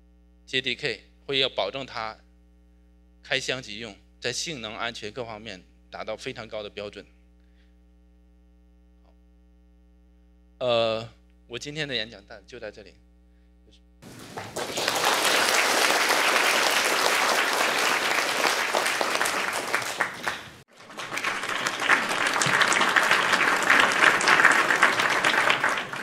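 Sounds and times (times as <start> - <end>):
audience applauding: 14.0 - 26.0.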